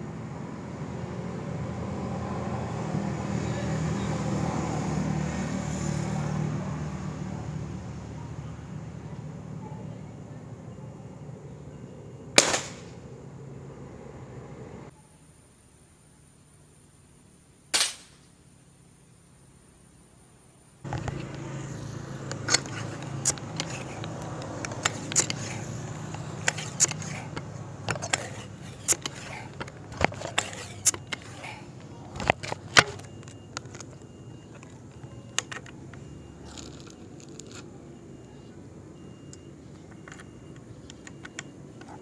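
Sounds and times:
outdoor background noise: 0.0 - 42.0
air rifle clicks and scrapes: 20.9 - 21.5, 22.2 - 35.8.

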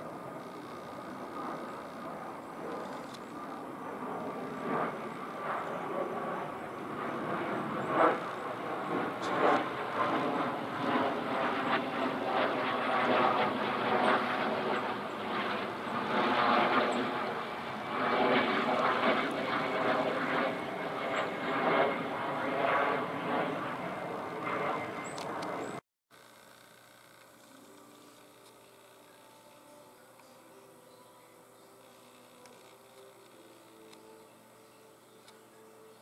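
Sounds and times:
jet passing overhead: 0.0 - 25.8.

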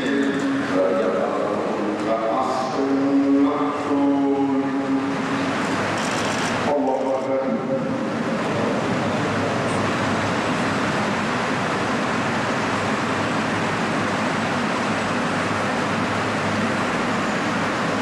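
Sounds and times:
electric fans running: 0.0 - 18.0.

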